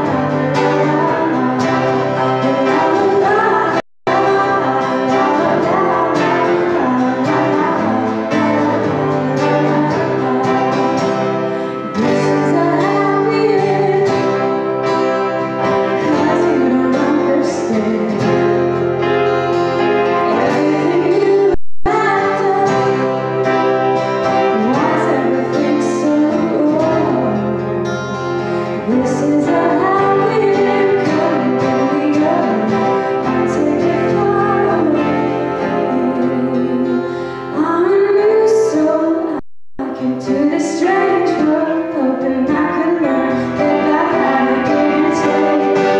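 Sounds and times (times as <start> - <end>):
woman singing: 0.0 - 18.8, 20.0 - 27.7, 28.8 - 45.9
acoustic guitar strummed: 0.0 - 45.9.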